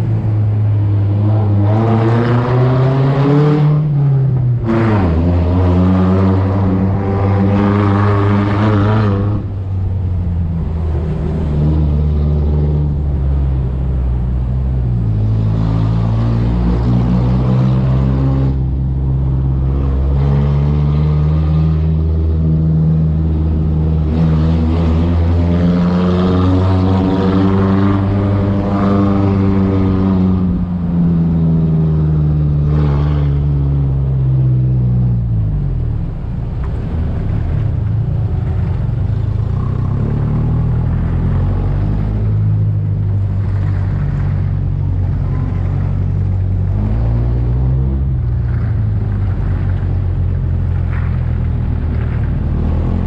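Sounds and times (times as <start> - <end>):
off-road vehicle engine driving: 0.0 - 53.0.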